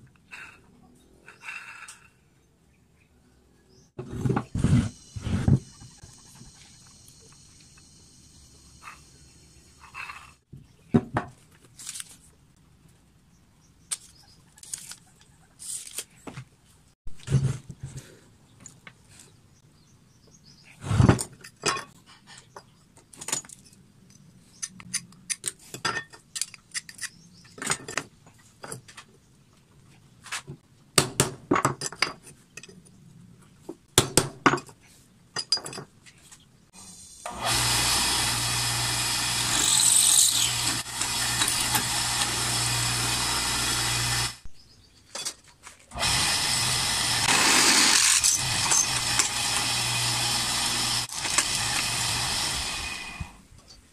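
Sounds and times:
drill press motor humming: 37.2 - 44.4, 46.0 - 53.3.

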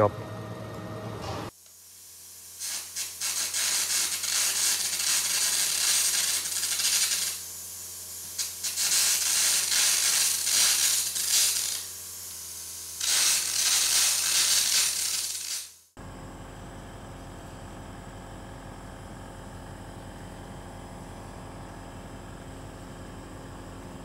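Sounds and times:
arc crackling: 2.5 - 7.5, 8.2 - 11.9, 13.0 - 15.8
air jet hissing: 2.6 - 7.5.

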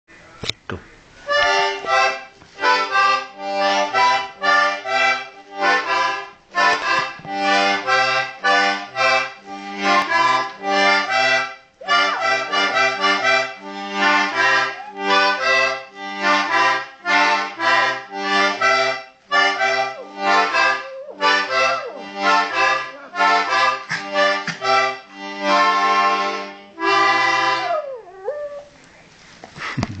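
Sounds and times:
accordion playing chords: 1.3 - 27.8
dog howling: 14.4 - 15.6, 27.6 - 28.7.

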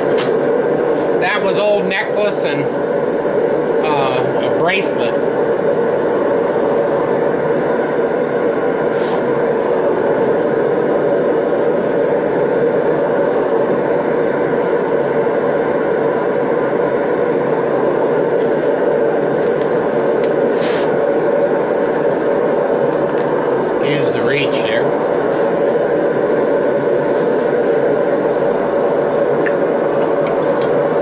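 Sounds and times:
torch flame rushing: 0.0 - 31.0.

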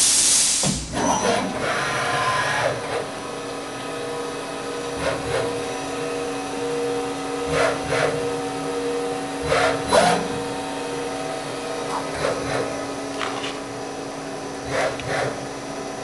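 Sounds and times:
machine drives whirring: 0.9 - 16.0
machine humming: 0.9 - 16.0.

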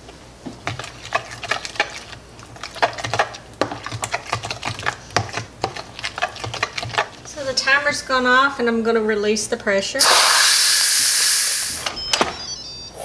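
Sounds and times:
metal utensil stirring in container: 0.6 - 7.8.

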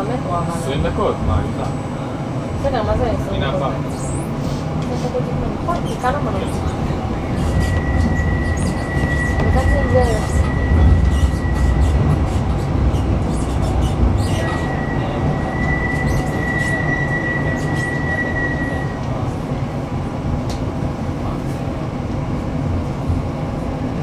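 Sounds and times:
tram rumble on rails: 0.0 - 24.0
wheel squeal: 6.6 - 19.0.

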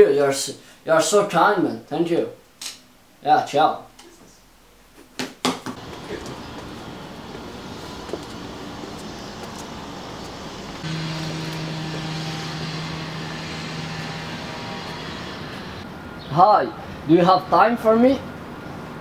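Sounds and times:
outdoor background noise: 0.0 - 19.0
steady low hum: 5.8 - 16.2.

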